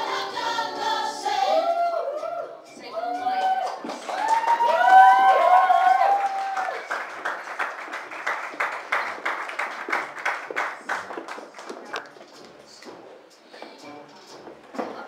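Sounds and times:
audience applauding: 3.2s - 12.1s.

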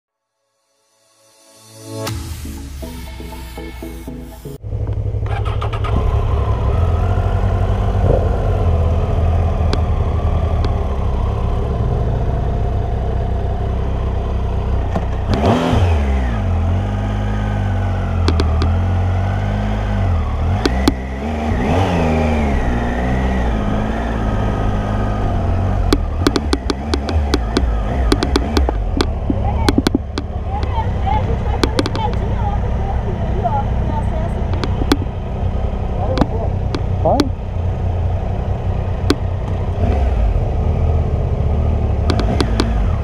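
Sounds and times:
motorcycle engine revving: 4.6s - 43.0s
sharp clicks: 18.2s - 18.8s, 20.6s - 21.0s, 25.9s - 30.8s, 31.6s - 32.3s, 34.4s - 35.1s, 36.1s - 37.4s, 39.0s - 39.6s, 42.0s - 42.8s.

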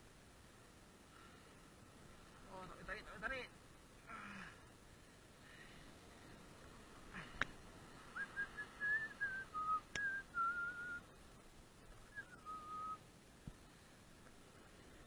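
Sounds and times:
person whistling a tune: 8.2s - 11.0s, 12.1s - 13.0s.

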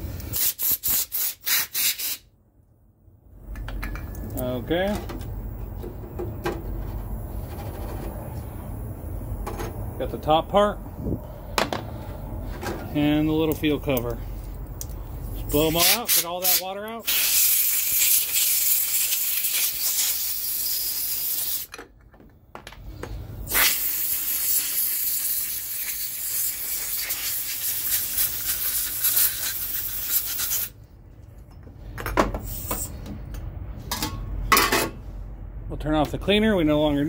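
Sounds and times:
compressed air hissing: 0.0s - 2.3s, 15.4s - 21.7s, 23.4s - 30.8s, 32.4s - 33.0s.

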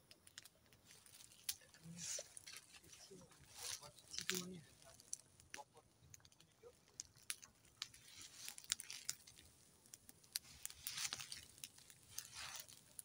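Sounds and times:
dry leaves crunching underfoot: 0.8s - 5.2s, 7.2s - 9.5s, 10.3s - 13.0s.

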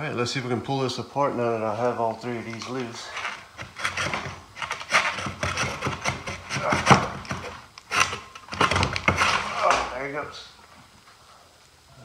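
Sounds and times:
metal tube scraping and creaking: 2.5s - 9.8s.

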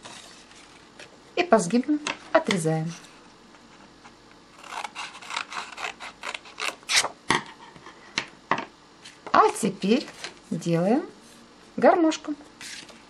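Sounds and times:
scissors snipping paper: 4.6s - 7.1s.

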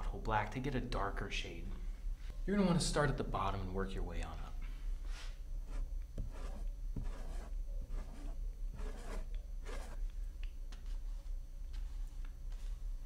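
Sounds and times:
brush scraping on canvas: 5.7s - 10.0s.

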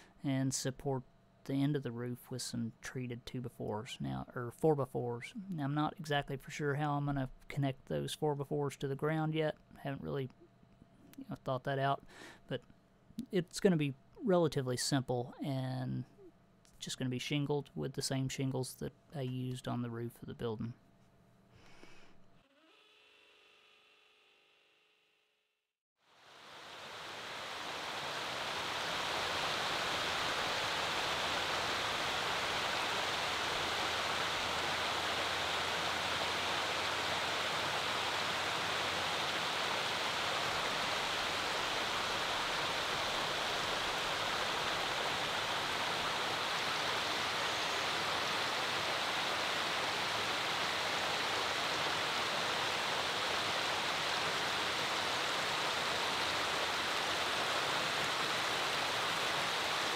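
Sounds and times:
creek water rushing over rocks: 26.3s - 59.9s.

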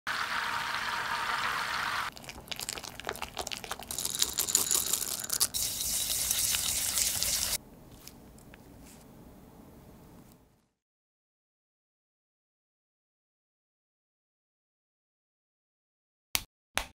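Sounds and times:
butter sizzling in a saucepan: 0.1s - 2.1s, 5.3s - 7.6s
chocolate chips clicking and rattling: 3.1s - 5.6s
bright steady hiss: 5.5s - 7.6s.

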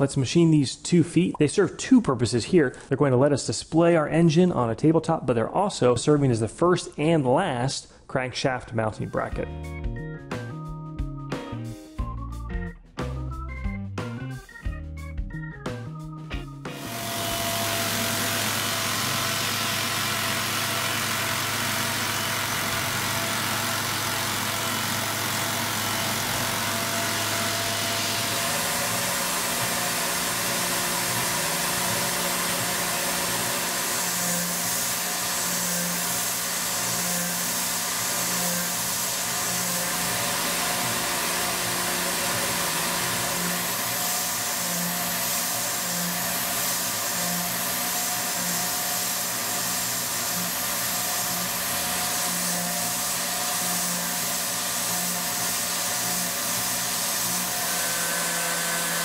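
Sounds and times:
coolant nozzle hiss: 16.8s - 58.6s
milling machine cutting metal: 16.8s - 59.0s.

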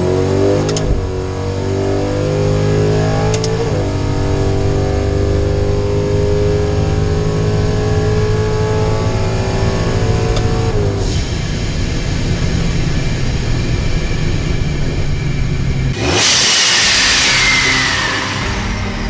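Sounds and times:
engine revving at full throttle: 0.0s - 11.0s, 15.9s - 19.0s.

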